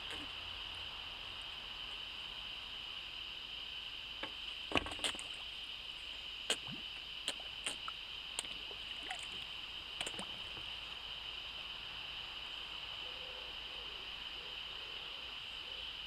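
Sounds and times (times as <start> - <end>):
steady high-pitched hum: 0.0 - 16.0
fish slurping and splashing: 4.6 - 10.8.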